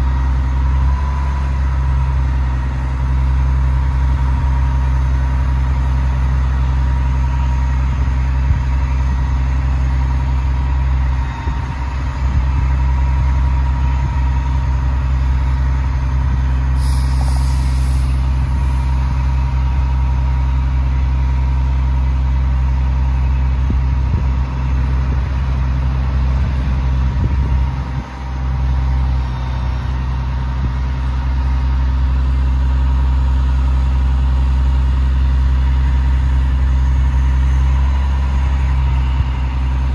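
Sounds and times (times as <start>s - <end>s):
diesel engine droning: 0.0s - 39.9s
brief hiss: 16.8s - 19.3s.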